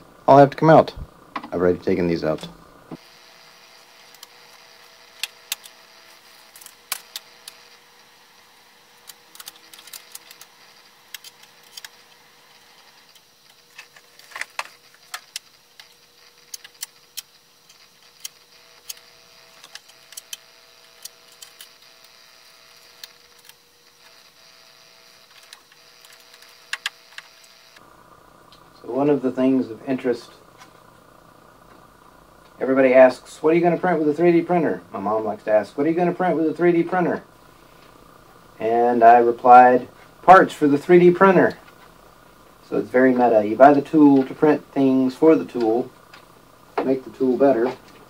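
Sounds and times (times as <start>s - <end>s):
faint steady hum: 0.0s - 48.0s
hands clicking plastic and metal parts: 9.0s - 10.5s.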